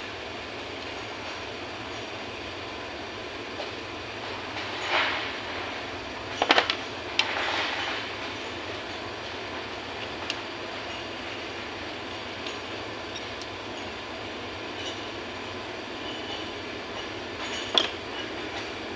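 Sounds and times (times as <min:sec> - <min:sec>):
metal parts clinking and scraping: 0:04.5 - 0:09.0, 0:14.7 - 0:15.2, 0:16.0 - 0:18.8.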